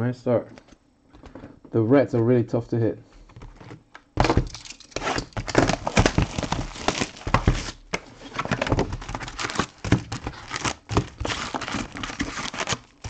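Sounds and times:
foil packs crinkling: 0:04.3 - 0:13.0.

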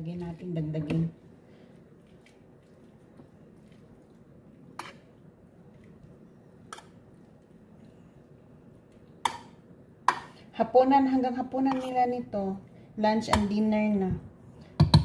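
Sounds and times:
spoon scooping macaroni: 0:02.0 - 0:09.5, 0:11.6 - 0:12.2.

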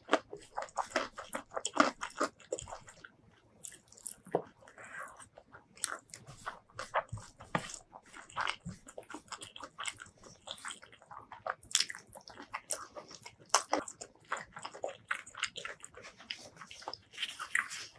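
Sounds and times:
crunchy bites: 0:00.0 - 0:03.0
wet chewing and lip smacks: 0:00.0 - 0:17.9.

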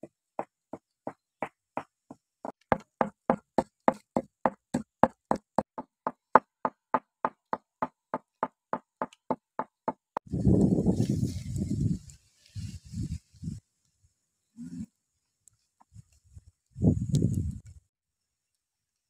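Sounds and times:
pestle pounding in mortar: 0:02.5 - 0:10.0.

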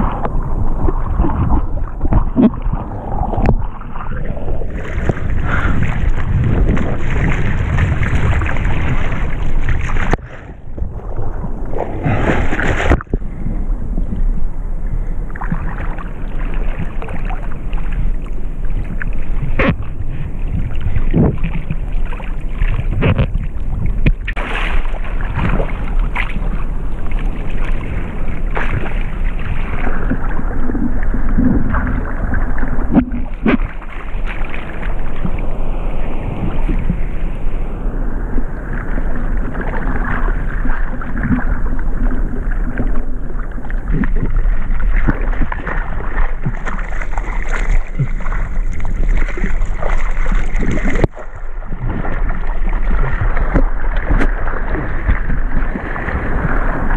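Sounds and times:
water sloshing against surfboard: 0:00.0 - 0:56.9
wind on microphone: 0:00.0 - 0:56.9
short splashes: 0:01.2 - 0:13.2, 0:24.2 - 0:30.3, 0:43.9 - 0:56.9.

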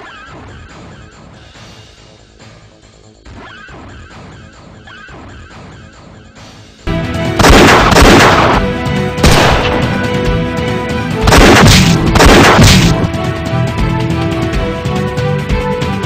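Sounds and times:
background music: 0:00.0 - 0:16.0
gunshots: 0:07.3 - 0:10.2, 0:11.2 - 0:13.1.

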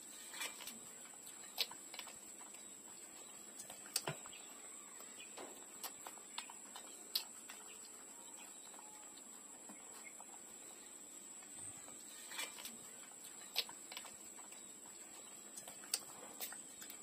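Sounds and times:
puppies wet sucking clicks: 0:15.5 - 0:17.0.

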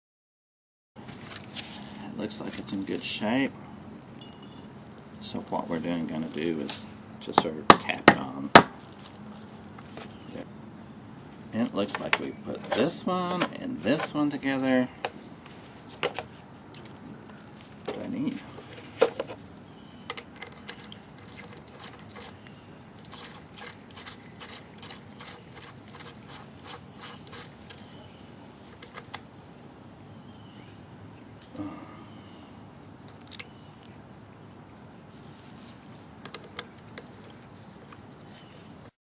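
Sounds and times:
metal parts clinking: 0:20.1 - 0:28.0, 0:28.7 - 0:29.3.

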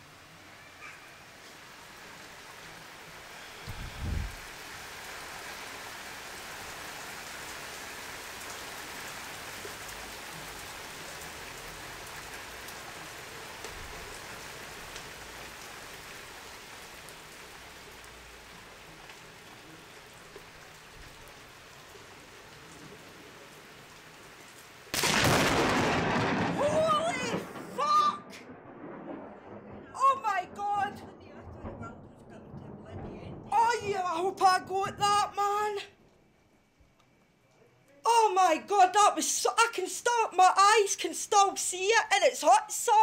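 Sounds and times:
steady rain hiss: 0:00.0 - 0:43.0
raindrop ticks: 0:12.0 - 0:16.1, 0:17.9 - 0:21.5, 0:36.9 - 0:37.3.

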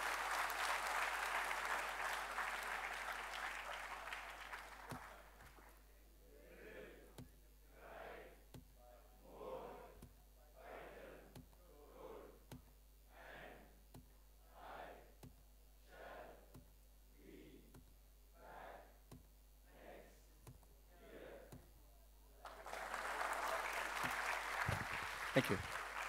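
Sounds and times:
audience applause: 0:00.0 - 0:05.7, 0:22.4 - 0:26.0
man speaking quietly: 0:25.3 - 0:25.8.

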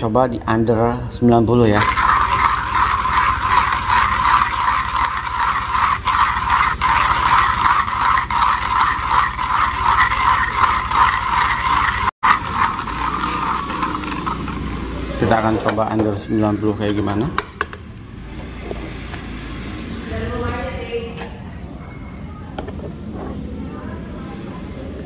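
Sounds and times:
hand coffee grinder grinding beans: 0:01.8 - 0:15.8.

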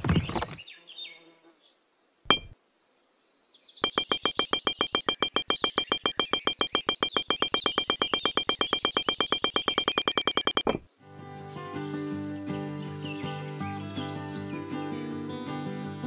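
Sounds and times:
high electronic blips: 0:03.8 - 0:10.8.

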